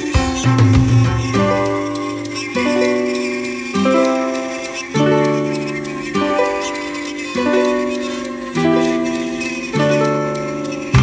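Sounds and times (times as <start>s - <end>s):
plucked string music: 0.0s - 11.0s.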